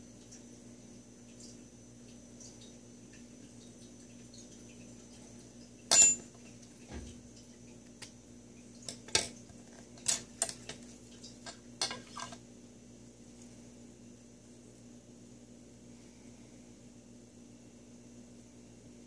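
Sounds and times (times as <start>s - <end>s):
metal clinks: 5.9s - 6.3s.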